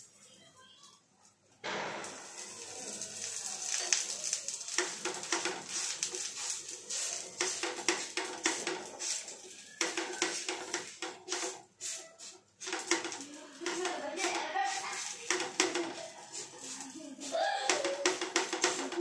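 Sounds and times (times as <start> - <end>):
hands patting dough: 1.7 - 19.0.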